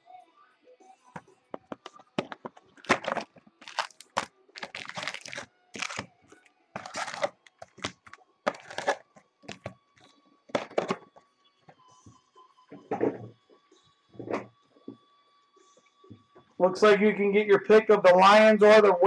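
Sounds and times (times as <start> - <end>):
cardboard box tearing and crinkling: 2.8 - 6.0, 6.8 - 9.6.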